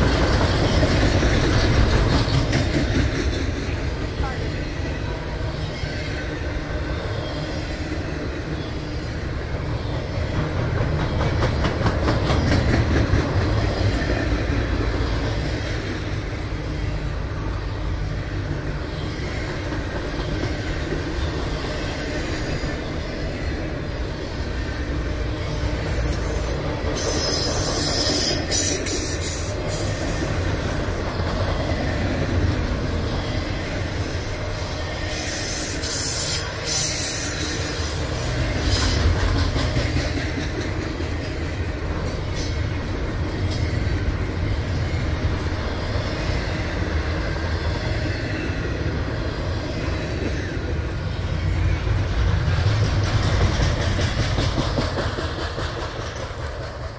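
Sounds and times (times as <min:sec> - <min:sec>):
wheels clicking over rail joints: 0:00.0 - 0:04.3, 0:10.0 - 0:16.2, 0:35.8 - 0:44.5, 0:51.9 - 0:56.9
train wheels rumbling on rail: 0:00.0 - 0:56.9.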